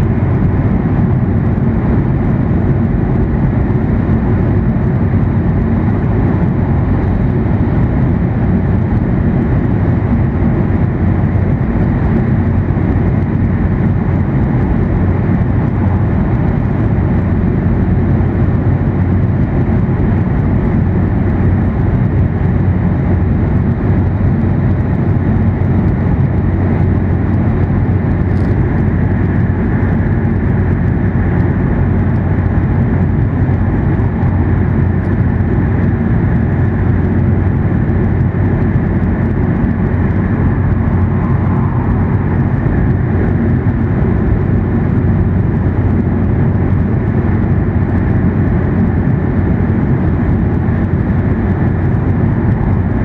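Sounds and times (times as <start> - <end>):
train cabin rumble: 19.8 - 53.0.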